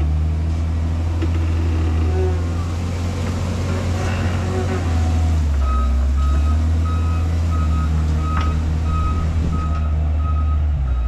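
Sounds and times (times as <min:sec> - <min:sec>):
diesel engine drone: 0:00.0 - 0:11.0
backup alarm beeping: 0:05.7 - 0:11.0.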